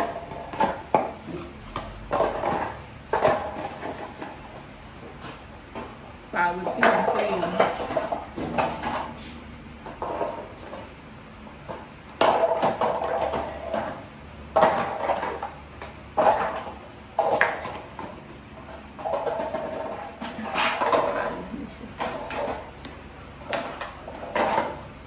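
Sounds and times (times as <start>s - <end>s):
ball knocking metal legs: 5.5s - 9.2s, 9.8s - 25.0s.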